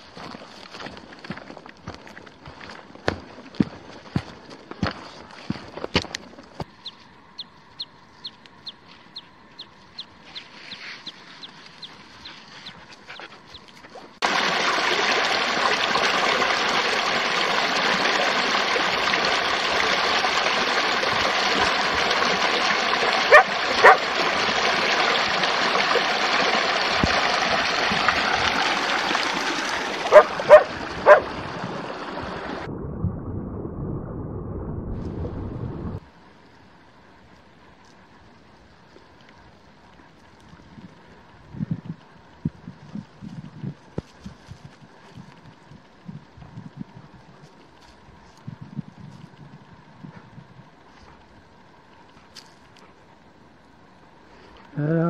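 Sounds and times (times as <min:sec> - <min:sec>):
stream rushing: 0:14.2 - 0:32.7
dog barking: 0:23.3 - 0:24.1, 0:30.1 - 0:31.3.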